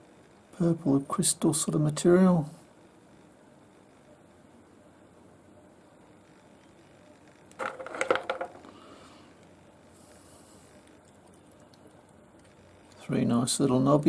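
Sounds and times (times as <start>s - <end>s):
faint room noise: 0.0s - 14.0s
stones clicking and knocking: 7.5s - 8.7s.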